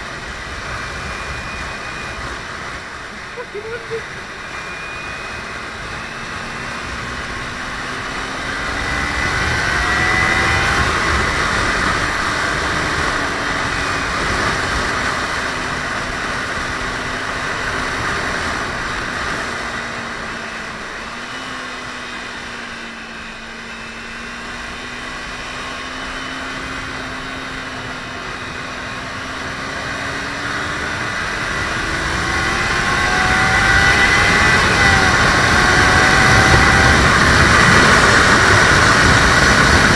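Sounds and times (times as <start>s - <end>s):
motorcycle engine running: 0.0s - 39.9s
wind rush: 30.1s - 39.9s.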